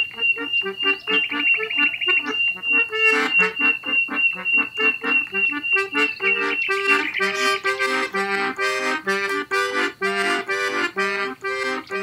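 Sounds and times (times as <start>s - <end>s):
instrumental background music: 4.5s - 12.0s.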